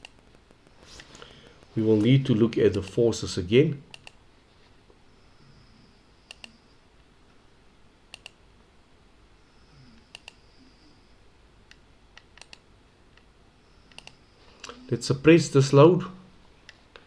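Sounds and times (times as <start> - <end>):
computer mouse clicking: 0.0 - 0.7, 3.9 - 4.2, 6.3 - 6.6, 8.1 - 8.4, 10.0 - 10.4, 11.7 - 12.6, 13.9 - 14.8.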